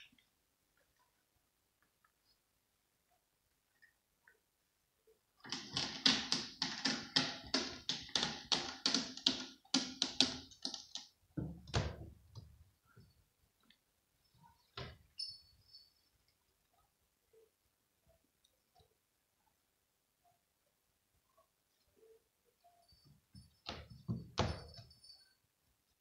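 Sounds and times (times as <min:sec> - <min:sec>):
cat scratching post: 0:05.4 - 0:11.1
small bell jingling: 0:15.2 - 0:16.1, 0:24.3 - 0:25.4.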